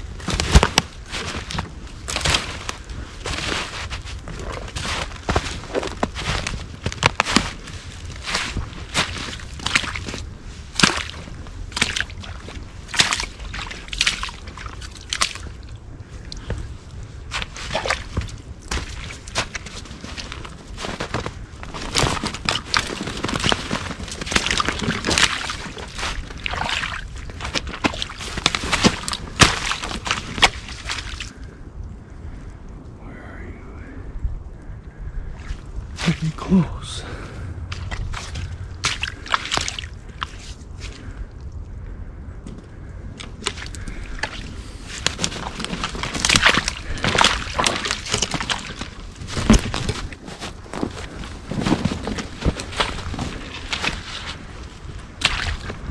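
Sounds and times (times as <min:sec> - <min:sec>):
footsteps crunching through snow: 0:00.0 - 0:15.5, 0:17.2 - 0:31.3, 0:35.4 - 0:36.4, 0:43.4 - 0:55.9
branches scraping and twigs snapping: 0:00.0 - 0:31.6, 0:35.2 - 0:36.5, 0:37.6 - 0:41.7, 0:42.4 - 0:55.9.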